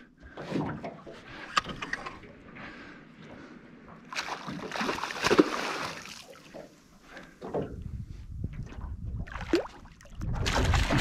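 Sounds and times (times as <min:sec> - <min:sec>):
fish splashing at water surface: 0:04.1 - 0:06.4.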